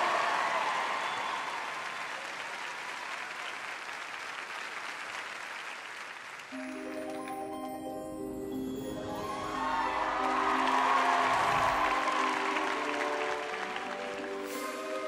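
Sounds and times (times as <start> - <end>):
studio audience applauding: 0.0 - 15.0
music with held notes: 6.6 - 15.0.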